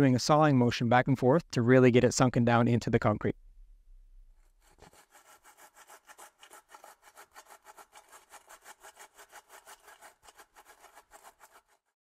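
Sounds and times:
metal plate rasping in wet concrete: 0:04.6 - 0:12.0.

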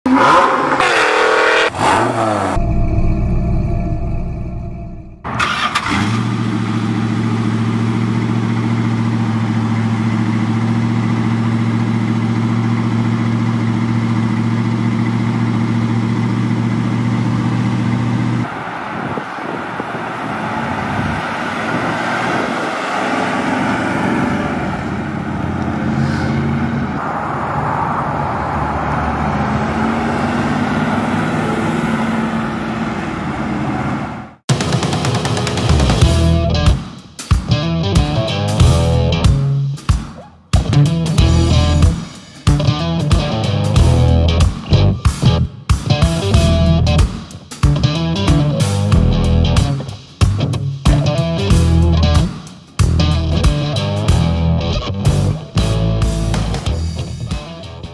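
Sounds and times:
car driving off revving: 0:00.1 - 0:02.6, 0:05.3 - 0:34.4
car engine idling: 0:05.3 - 0:21.7, 0:22.4 - 0:25.9.

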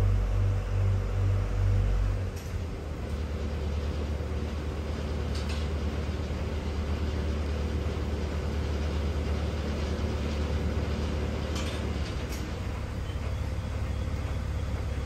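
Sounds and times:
boat engine droning: 0:00.0 - 0:11.5.

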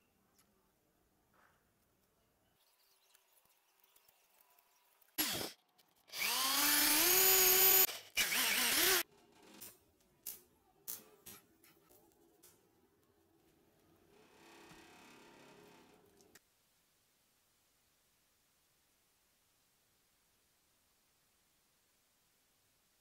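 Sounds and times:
electric drill boring through steel: 0:05.2 - 0:05.5, 0:06.1 - 0:09.0.

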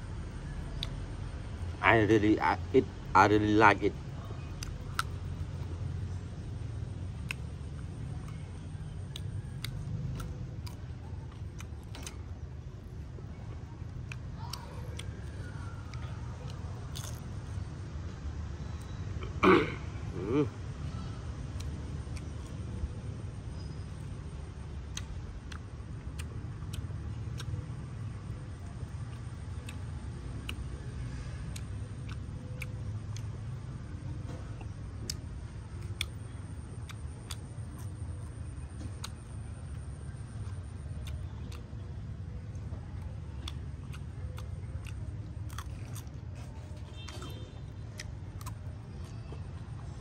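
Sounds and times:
person chewing crunchy food: 0:04.5 - 0:05.8, 0:07.1 - 0:17.6, 0:24.8 - 0:33.6, 0:34.2 - 0:50.0.

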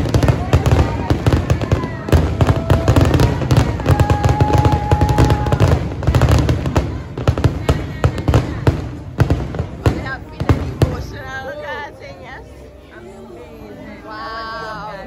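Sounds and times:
fireworks bangs and booms: 0:00.0 - 0:11.5.

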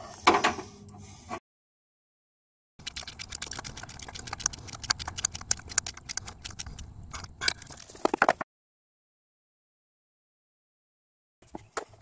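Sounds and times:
metallic clicking of hand tools: 0:02.8 - 0:08.4.

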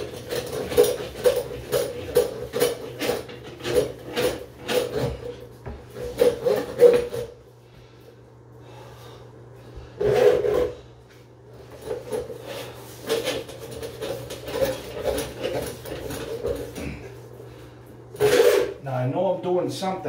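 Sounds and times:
drain snake cable scraping: 0:00.0 - 0:07.4, 0:10.0 - 0:10.9, 0:11.6 - 0:18.8
steady low hum: 0:00.0 - 0:20.0.

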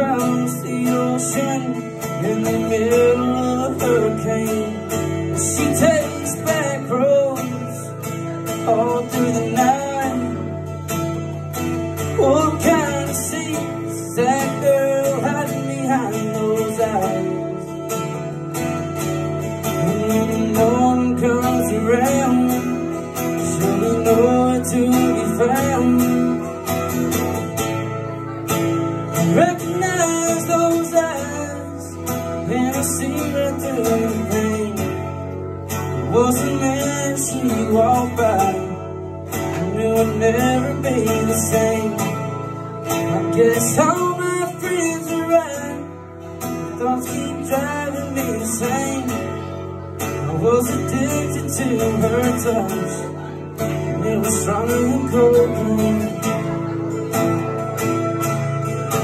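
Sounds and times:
acoustic guitar strumming: 0:00.0 - 0:59.0
man singing: 0:00.0 - 0:59.0.

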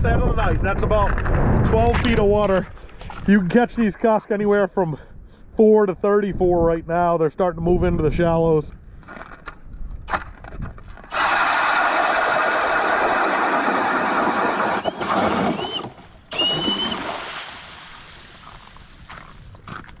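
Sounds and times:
ice auger grinding through ice: 0:11.1 - 0:15.8.

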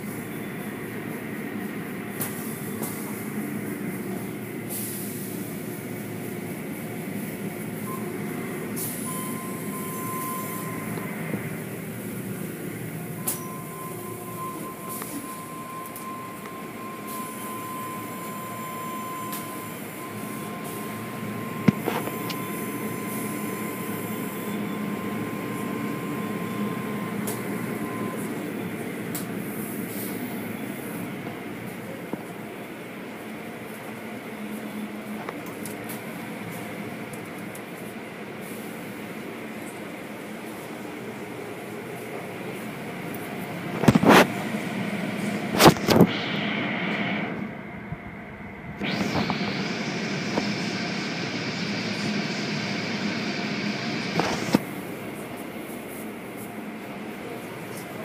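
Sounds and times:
thin high whine: 0:00.0 - 0:31.2, 0:43.7 - 0:57.7
car wash machinery rumbling: 0:36.1 - 0:58.0.

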